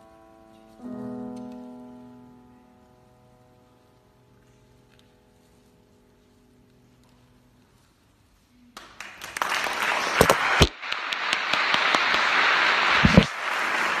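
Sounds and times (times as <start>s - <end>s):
audience applause: 8.8s - 14.0s.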